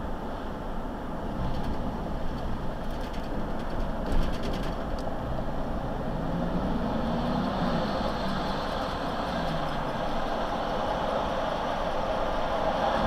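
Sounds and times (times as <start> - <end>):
road and engine noise inside vehicle: 0.0 - 13.0
vehicle jolt: 1.3 - 10.3.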